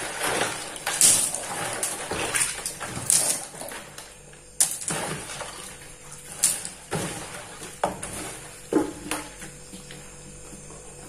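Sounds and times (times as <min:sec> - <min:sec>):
water sloshing: 0:00.0 - 0:10.0.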